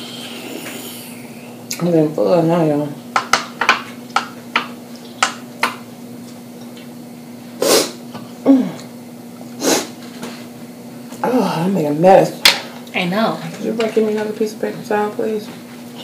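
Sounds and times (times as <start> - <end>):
low falling hum: 0.0 - 3.0
low electrical hum: 0.0 - 16.0.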